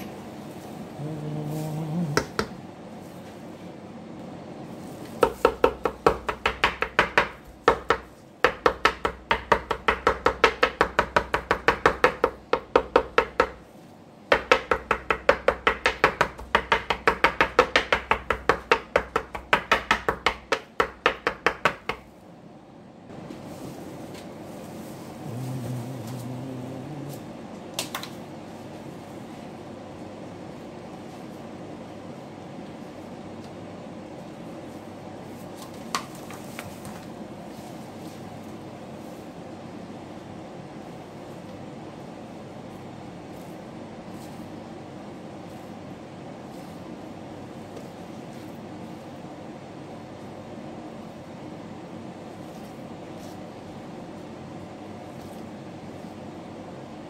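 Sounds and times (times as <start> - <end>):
knife chopping on cutting board: 2.2 - 2.6, 5.2 - 13.6, 14.3 - 22.1.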